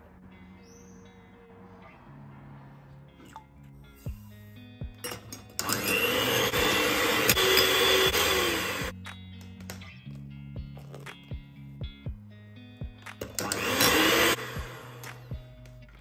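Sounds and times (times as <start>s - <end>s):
electric hand mixer whisking: 5.1s - 8.9s, 13.3s - 15.2s.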